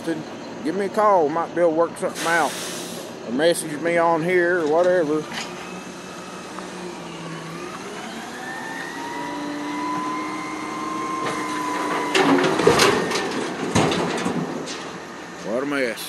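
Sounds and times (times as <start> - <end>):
hydraulic whine: 4.6 - 15.7
garbage truck engine revving: 5.0 - 16.0
trash crashing into hopper: 11.1 - 15.5.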